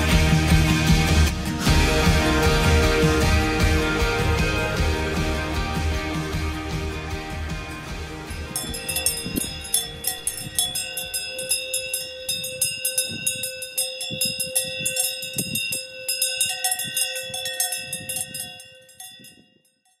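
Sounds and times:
cowbells clanking: 7.3 - 20.0.

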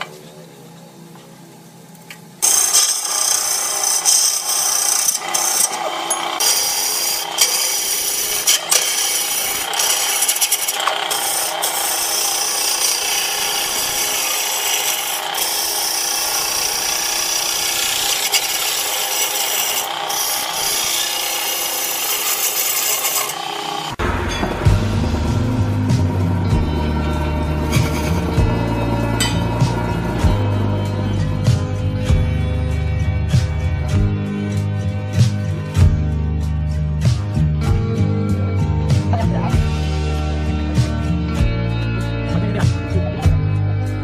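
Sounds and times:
chisel scraping turning wood: 2.4 - 24.0
lathe motor humming: 2.4 - 24.1, 24.8 - 31.4.

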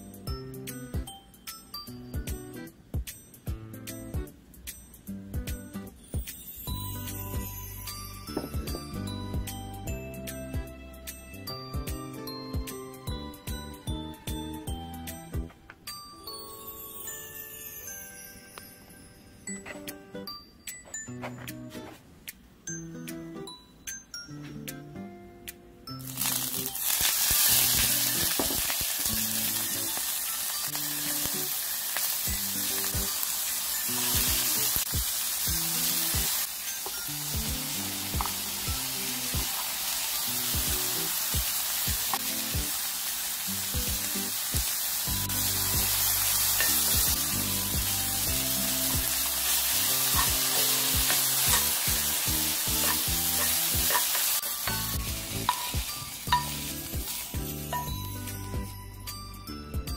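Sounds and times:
food sizzling in oil: 26.0 - 58.6
utensil tapping pan: 49.0 - 58.1.

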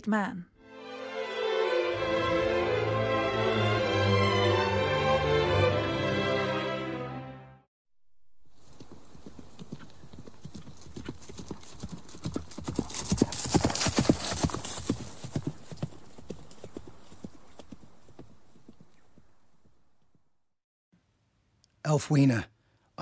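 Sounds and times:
horse hooves clip-clopping: 8.5 - 20.2.

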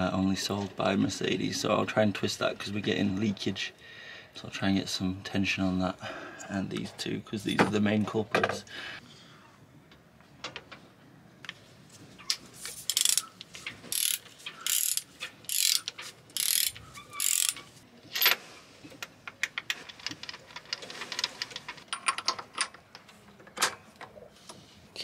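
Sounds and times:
socket ratchet clicking: 12.9 - 17.6.

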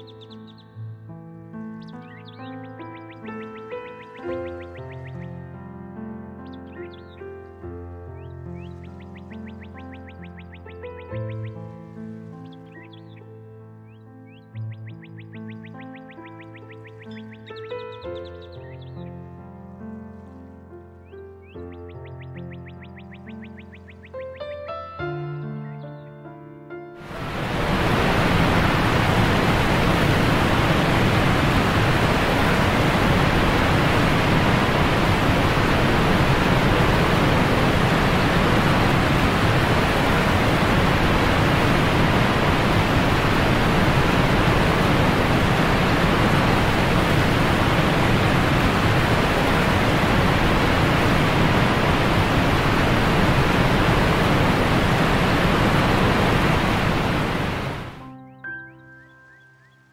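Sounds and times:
river rapids rushing: 27.0 - 58.0.

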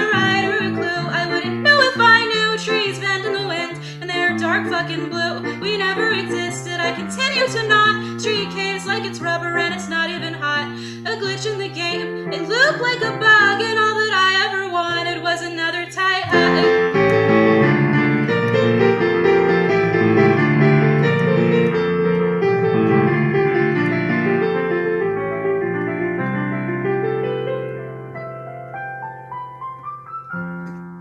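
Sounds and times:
person singing: 0.0 - 17.4
electric keyboard piano chords: 0.0 - 31.0.

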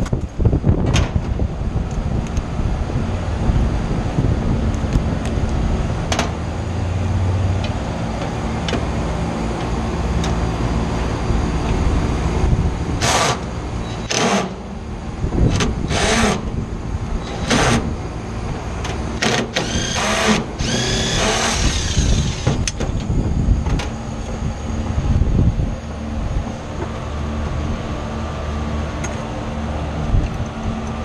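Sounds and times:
steady low hum: 0.0 - 31.0
cordless drill bursts: 19.2 - 22.7.

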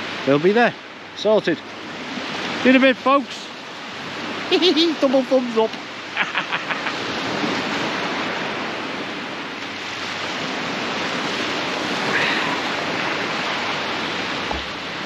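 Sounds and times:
surf washing over a beach: 0.0 - 15.0
brief knock: 14.5 - 14.7.

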